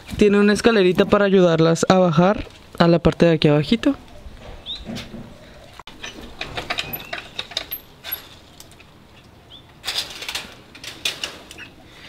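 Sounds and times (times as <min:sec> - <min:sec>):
wooden door clicking on hinges: 0:06.0 - 0:08.3.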